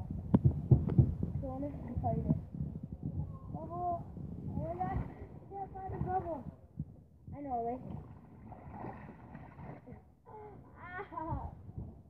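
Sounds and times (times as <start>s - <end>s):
low rumbling: 0.0s - 12.0s.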